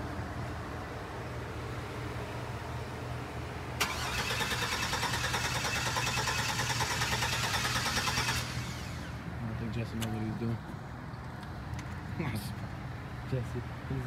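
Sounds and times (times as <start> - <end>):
starter motor cranking engine: 3.8 - 9.2.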